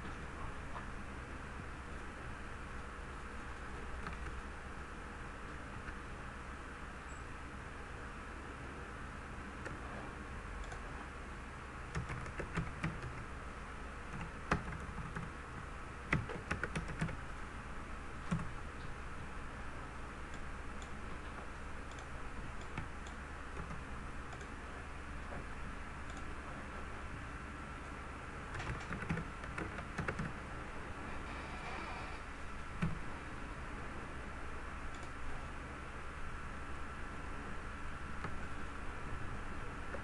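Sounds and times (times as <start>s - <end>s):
low hum and hiss: 0.0s - 40.0s
keyboard typing: 3.2s - 4.4s, 11.9s - 13.3s, 14.1s - 15.4s, 16.1s - 17.2s, 18.2s - 18.6s, 20.3s - 24.6s, 28.5s - 30.4s.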